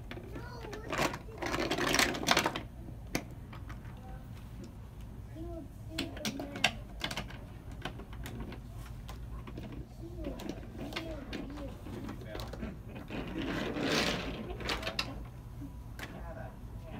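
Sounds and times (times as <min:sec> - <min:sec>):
wooden toy trains clattering: 0:00.0 - 0:04.0, 0:05.9 - 0:15.4.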